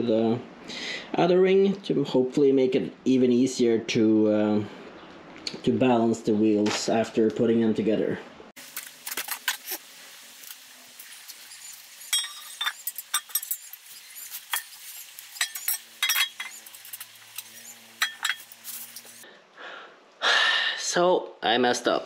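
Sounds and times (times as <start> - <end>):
small metal parts clinking: 11.5 - 19.2.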